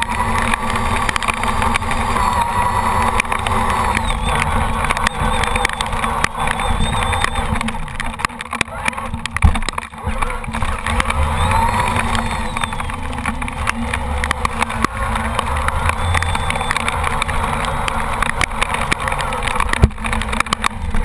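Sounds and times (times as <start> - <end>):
rc truck electric motor drone: 0.0 - 21.0
sharp clicks and knocks: 0.0 - 21.0.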